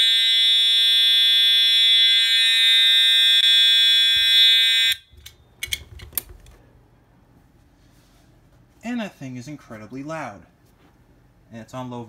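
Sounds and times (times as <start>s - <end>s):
fire alarm horn steady tone: 0.0s - 5.2s
clicks and knocks of handling: 5.1s - 6.6s.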